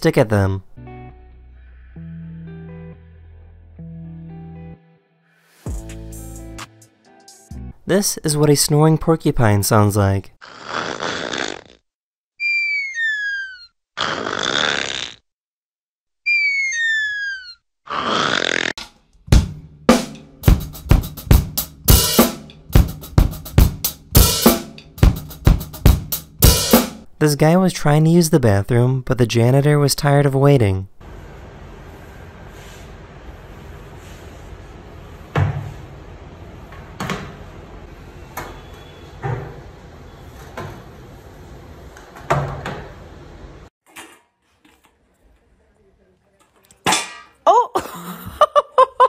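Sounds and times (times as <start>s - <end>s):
drum kit groove: 5.6s - 7.5s, 19.3s - 27.1s
wet mop on tiled floor: 31.1s - 37.6s, 43.8s - 46.8s.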